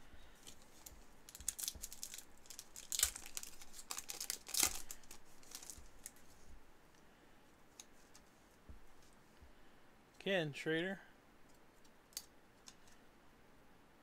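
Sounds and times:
trading cards rustling: 0.3s - 6.6s.

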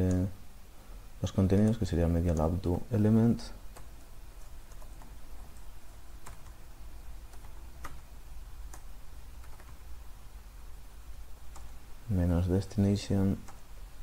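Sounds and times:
faint low hum: 0.0s - 14.0s
keyboard typing: 1.4s - 2.6s, 3.7s - 9.9s, 11.5s - 11.8s, 13.4s - 13.7s.

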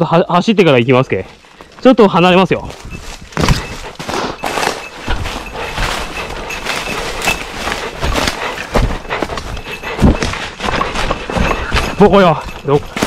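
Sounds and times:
footsteps running through dry leaves: 2.1s - 13.0s
branches brushing: 2.6s - 13.0s.

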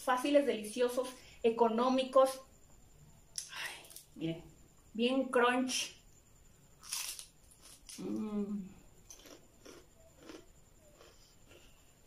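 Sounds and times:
crunchy bite: 6.8s - 12.0s
crunchy chewing: 6.8s - 12.0s.

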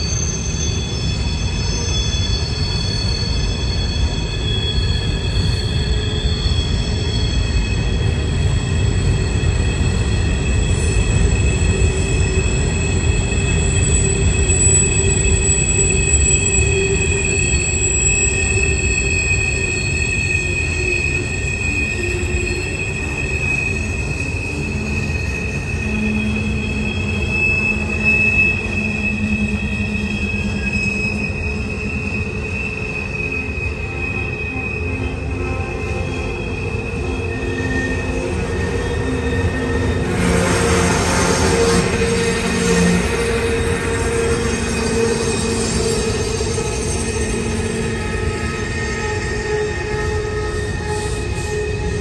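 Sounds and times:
train rumbling: 0.0s - 52.0s
wheel flanges squealing: 0.0s - 52.0s.

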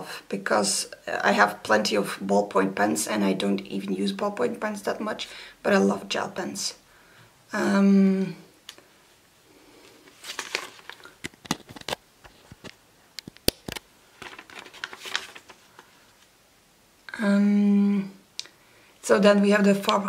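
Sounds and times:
paper rustling: 9.8s - 16.3s.

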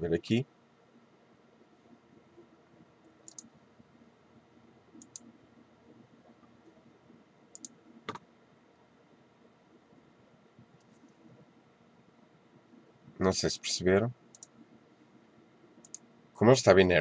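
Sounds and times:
computer mouse clicking: 3.0s - 3.5s, 5.0s - 5.3s, 7.5s - 8.2s, 14.3s - 14.6s, 15.8s - 16.0s.

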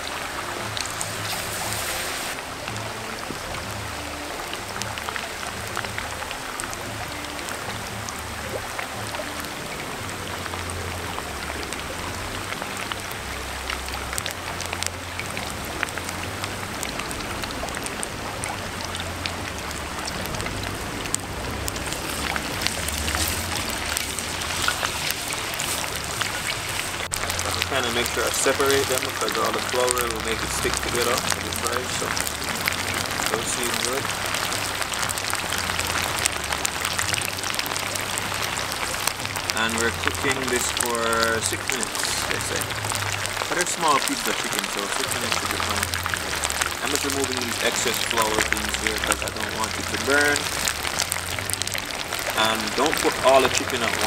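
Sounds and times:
chicken sizzling in hot oil: 0.0s - 54.0s
wooden spatula stirring: 21.8s - 28.2s.

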